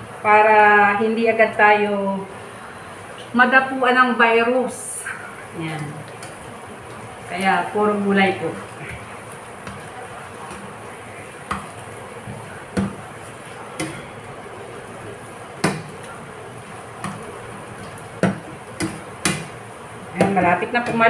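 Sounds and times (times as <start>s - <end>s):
spatula knocking and scraping pan: 8.8s - 14.3s, 15.6s - 19.6s, 20.2s - 21.0s.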